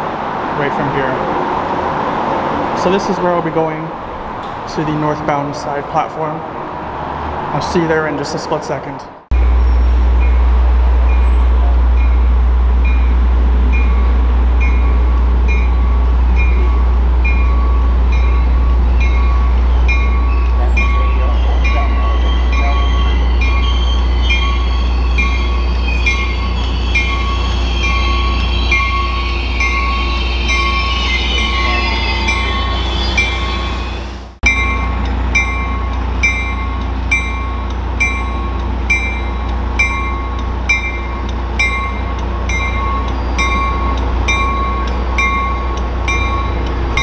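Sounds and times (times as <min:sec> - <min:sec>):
train rumble: 0:00.0 - 0:47.0
squealing wheels or brakes: 0:09.4 - 0:11.7, 0:16.4 - 0:34.4
bell striking: 0:13.8 - 0:33.4, 0:34.4 - 0:47.0.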